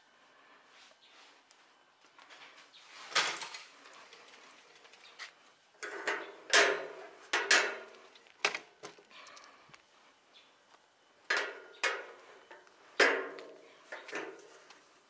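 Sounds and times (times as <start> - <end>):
gate rattling: 5.8 - 8.0, 11.3 - 12.3, 13.0 - 14.5
metal gate bolt clanking: 5.8 - 8.0, 11.3 - 14.5.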